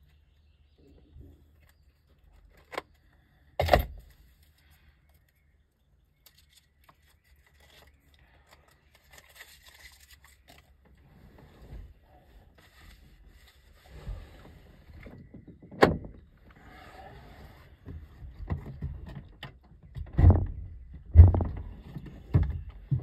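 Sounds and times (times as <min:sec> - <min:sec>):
dull thuds: 0:19.9 - 0:23.0.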